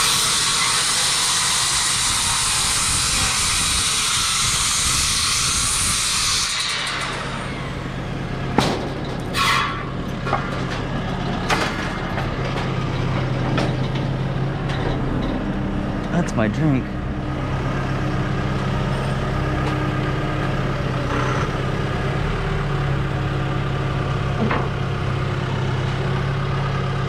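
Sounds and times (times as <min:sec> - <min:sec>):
circular saw cutting timber: 0:00.0 - 0:13.4
low engine hum: 0:10.0 - 0:27.0.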